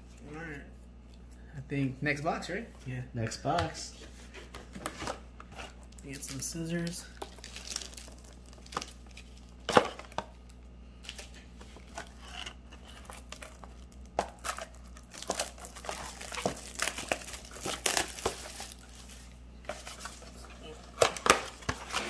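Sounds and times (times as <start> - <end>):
shrink wrap crinkling and tearing: 5.0 - 22.0.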